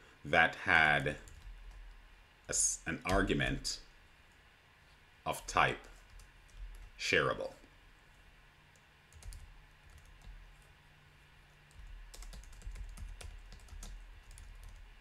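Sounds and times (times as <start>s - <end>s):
keyboard typing clicks: 11.7s - 14.8s.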